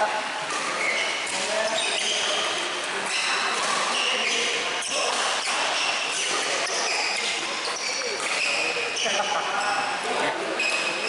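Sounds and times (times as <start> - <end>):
rackets striking shuttlecock: 0.5 - 8.8
shoes squeaking on court: 0.5 - 10.0, 10.6 - 11.0.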